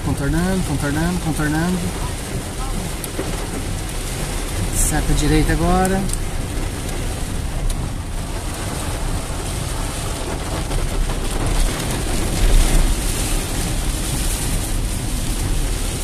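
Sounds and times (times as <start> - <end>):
heavy rain on a car: 0.0 - 16.0
tyres on a flooded road: 0.0 - 16.0.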